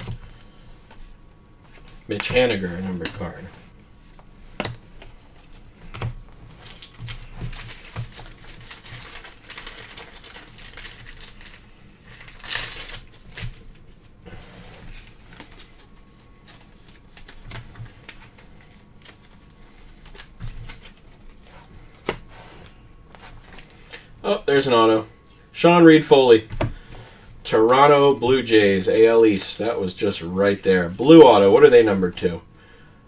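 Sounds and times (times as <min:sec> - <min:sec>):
cards clicking and rustling: 0:05.9 - 0:13.8, 0:14.9 - 0:22.3.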